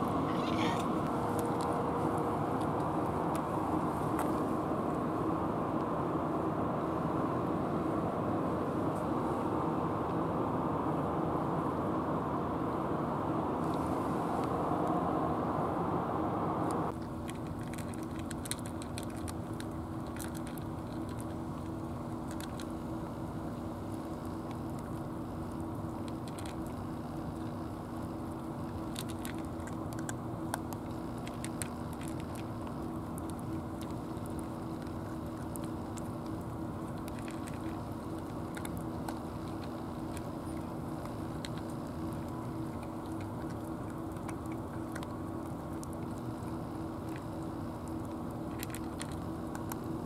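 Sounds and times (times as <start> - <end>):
cat crunching food: 0.0 - 5.0, 16.9 - 50.0
steady low hum: 0.0 - 50.0.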